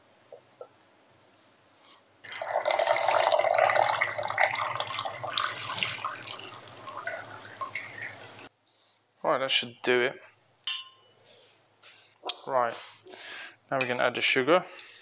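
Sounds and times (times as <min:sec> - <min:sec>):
liquid pouring into a jug: 0:02.3 - 0:08.5.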